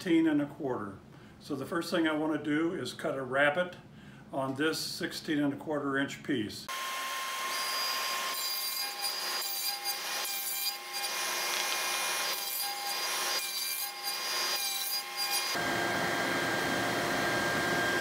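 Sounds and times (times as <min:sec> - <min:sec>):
table saw cutting wood: 0:06.7 - 0:18.0.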